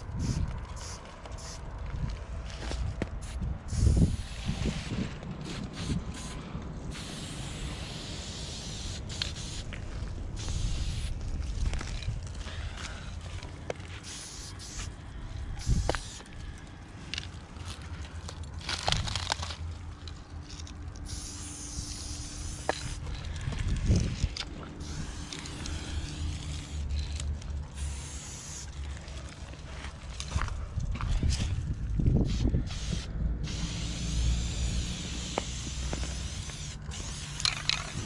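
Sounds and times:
spray paint can hissing: 0:00.0 - 0:01.6, 0:03.2 - 0:11.3, 0:14.0 - 0:15.0, 0:15.6 - 0:16.3, 0:21.0 - 0:23.2, 0:24.8 - 0:28.8, 0:32.2 - 0:38.0
low rumble: 0:00.0 - 0:14.0, 0:14.9 - 0:38.0.

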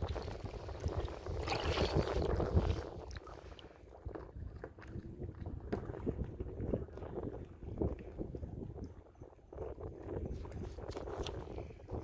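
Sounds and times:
light water splashes: 0:00.0 - 0:09.0
small waves lapping against kayak: 0:00.0 - 0:12.0
wind buffeting microphone: 0:00.0 - 0:12.0.

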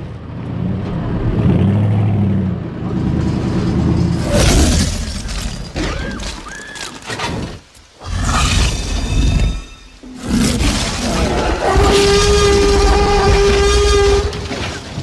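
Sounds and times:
dinosaur roar: 0:08.0 - 0:14.5.

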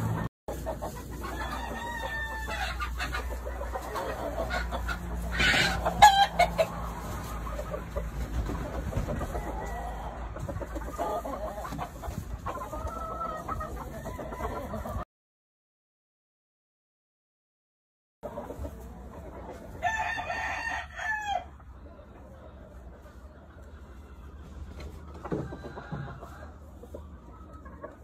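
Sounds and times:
hens clucking: 0:00.0 - 0:15.0, 0:18.2 - 0:28.0
rooster crowing: 0:01.2 - 0:02.8, 0:05.3 - 0:06.7, 0:19.8 - 0:21.5, 0:25.2 - 0:26.6.

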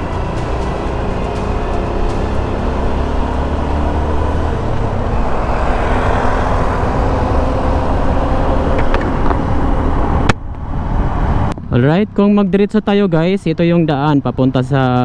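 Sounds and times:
wind rush on microphone: 0:04.6 - 0:12.4.

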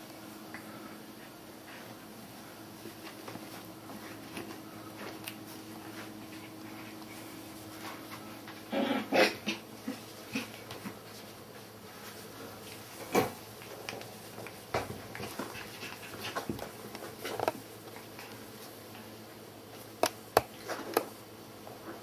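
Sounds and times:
clicks and taps of puppies moving: 0:02.8 - 0:07.2, 0:09.9 - 0:11.3, 0:12.7 - 0:21.2.

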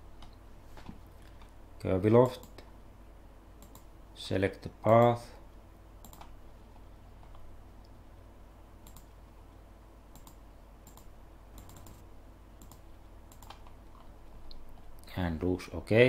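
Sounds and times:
low steady hum: 0:00.0 - 0:16.0
computer mouse clicking: 0:03.6 - 0:03.9, 0:06.0 - 0:06.3, 0:08.8 - 0:09.2, 0:10.1 - 0:12.0, 0:12.6 - 0:14.6.

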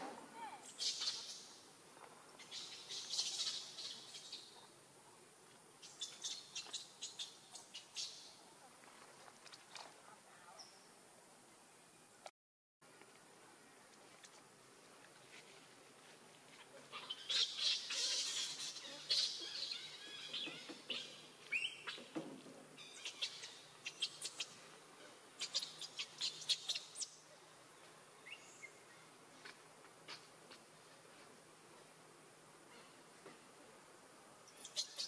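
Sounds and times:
birds chirping: 0:16.9 - 0:22.1.

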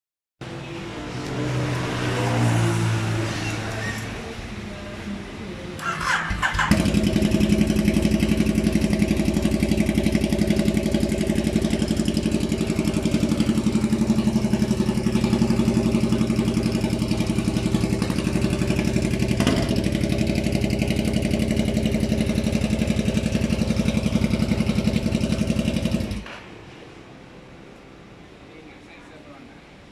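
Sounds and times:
motorcycle engine idling: 0:05.8 - 0:26.3.

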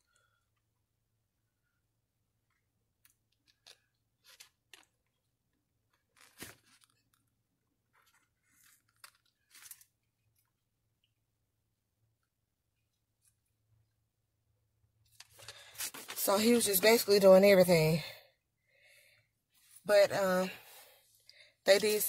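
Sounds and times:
paper rustling and crinkling: 0:06.0 - 0:07.2, 0:07.9 - 0:10.1, 0:15.2 - 0:17.2.

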